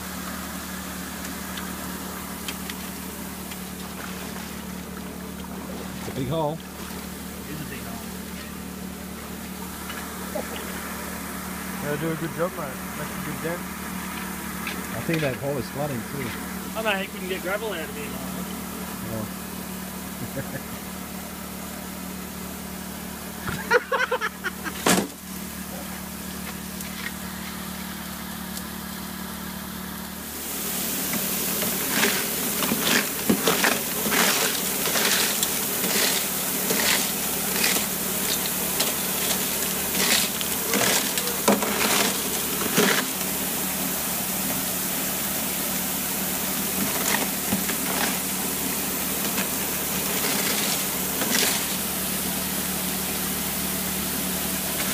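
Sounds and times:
water pump engine running: 0.0 - 54.9
water spraying: 0.0 - 54.9
gravel rattling on metal plate: 31.1 - 43.4, 46.6 - 51.9.

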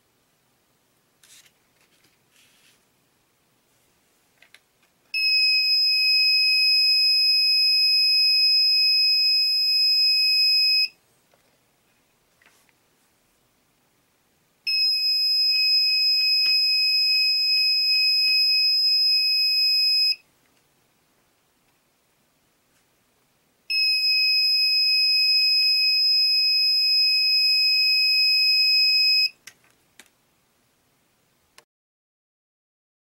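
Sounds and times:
high-pitched electronic buzzer: 5.2 - 11.0, 14.7 - 20.2, 23.7 - 29.4.

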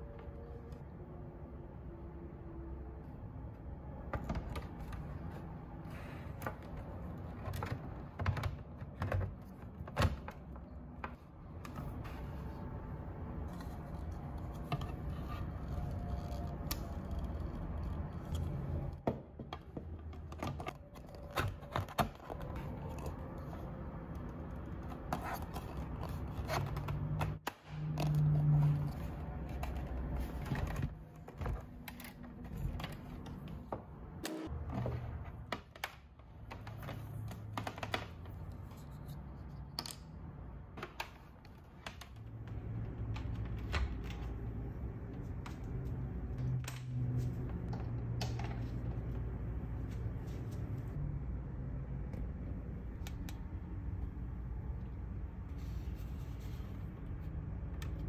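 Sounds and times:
plastic parts clicking and scraping: 3.9 - 49.4.

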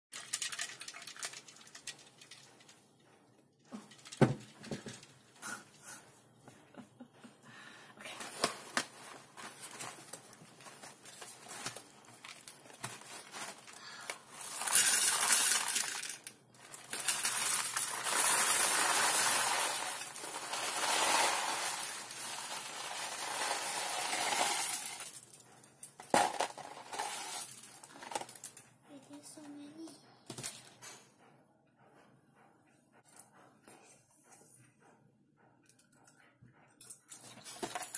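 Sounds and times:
popcorn pouring into glass bowl: 0.1 - 2.4, 13.8 - 25.2, 26.2 - 27.7.

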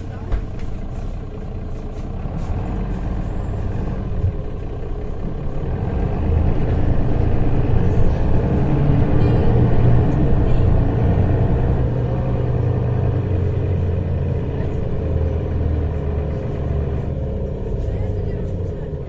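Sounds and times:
bus rumbling from inside: 0.0 - 19.0.

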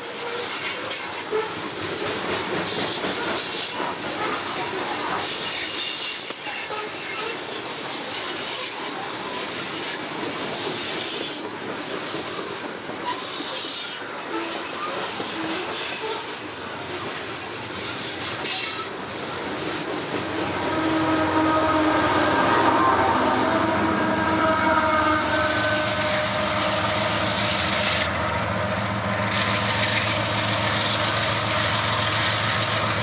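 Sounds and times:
train wheels rumbling on rails: 0.0 - 33.0
wheels squealing: 10.6 - 28.1.

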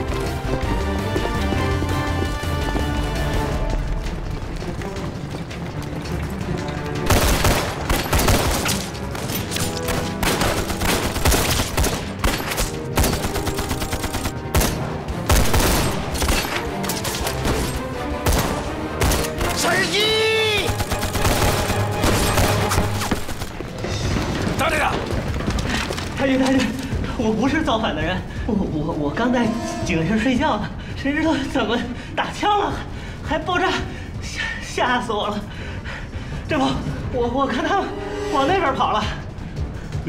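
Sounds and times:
background music: 0.0 - 40.0
rifle and machine-gun fire: 7.0 - 9.2, 9.8 - 16.4, 20.6 - 25.6.

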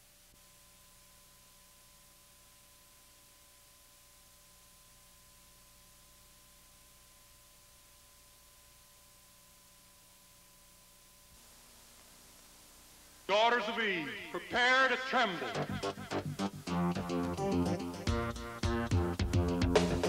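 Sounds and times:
faint steady tone: 0.0 - 14.4
low electrical hum: 0.0 - 19.4
faint steady hiss: 0.0 - 20.0.

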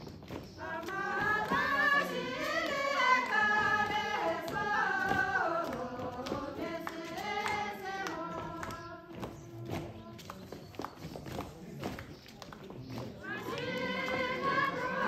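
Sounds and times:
group of women singing: 0.1 - 10.4, 13.2 - 15.0.

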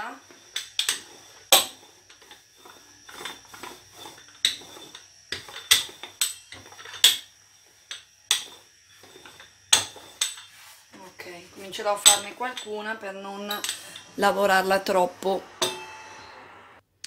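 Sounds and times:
metal rolling pin knocking on board: 0.6 - 1.8, 8.3 - 10.4.

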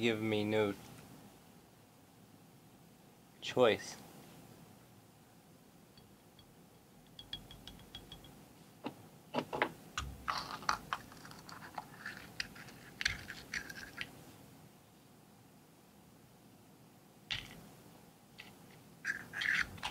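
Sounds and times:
scraping on stone: 10.0 - 14.1, 18.4 - 19.9.

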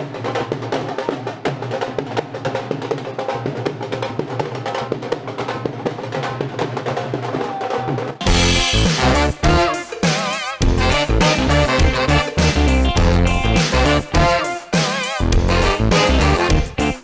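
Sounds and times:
drum beating a driving rhythm: 0.0 - 17.0
loud band music: 8.2 - 17.0
pitched instruments: 8.2 - 17.0.

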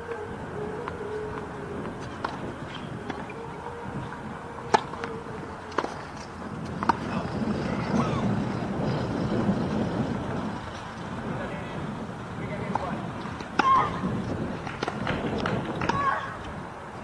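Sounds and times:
racket hitting tennis ball: 4.7 - 7.2, 12.7 - 14.0, 14.6 - 16.3.

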